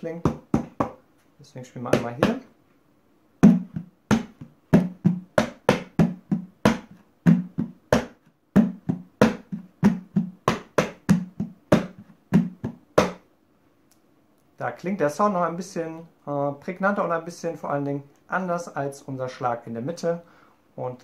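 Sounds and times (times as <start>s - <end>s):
hand drumming on plastic bin: 0.2s - 1.0s, 1.9s - 2.5s, 3.4s - 13.2s.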